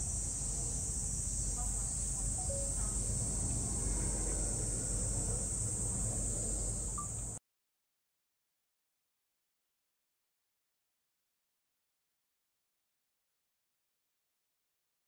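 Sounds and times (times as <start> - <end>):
high-pitched insect drone: 0.0 - 7.4
low background rumble: 0.0 - 7.4
faint distant voices: 0.4 - 7.0.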